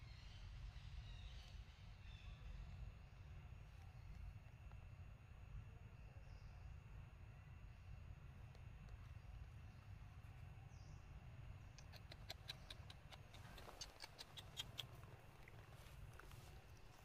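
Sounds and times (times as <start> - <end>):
footsteps on dry leaves and twigs: 14.9 - 17.0.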